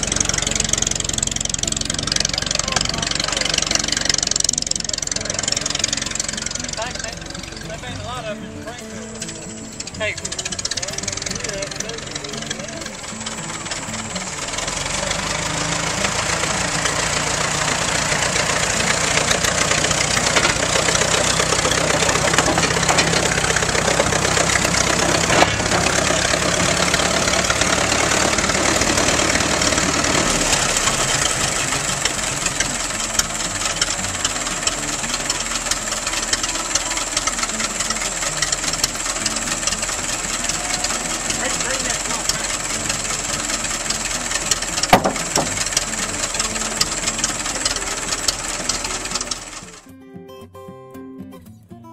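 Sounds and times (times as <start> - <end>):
tractor engine running: 0.0 - 49.9
sharp crack: 41.2 - 49.7.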